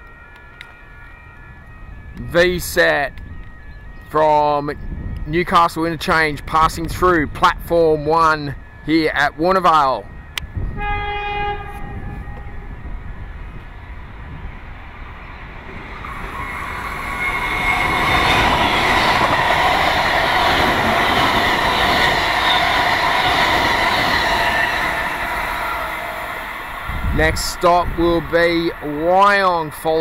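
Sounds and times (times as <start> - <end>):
train rumble and wheels on rail: 0.0 - 7.9, 10.0 - 30.0
train horn: 10.6 - 12.8, 16.3 - 28.3.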